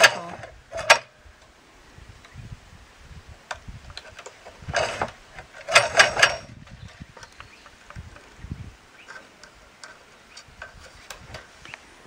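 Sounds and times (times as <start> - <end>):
wire scraping through wood: 3.9 - 7.3.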